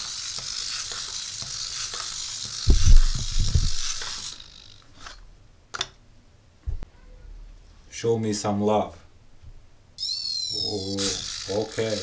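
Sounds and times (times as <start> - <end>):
robot servos whirring: 0.0 - 5.2, 10.0 - 12.0.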